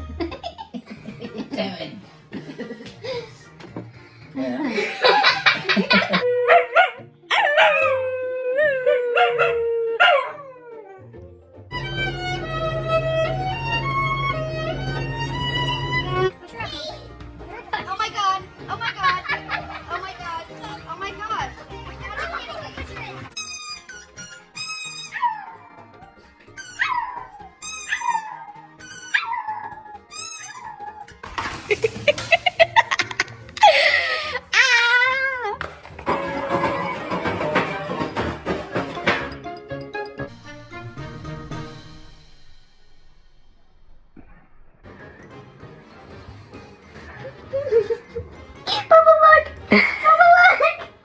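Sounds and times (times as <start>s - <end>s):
dog yelping: 6.1s - 8.0s, 8.8s - 11.1s, 24.9s - 25.8s, 26.6s - 31.2s
dog howling: 6.1s - 11.2s
high-pitched squeak: 23.3s - 25.4s, 26.6s - 30.9s.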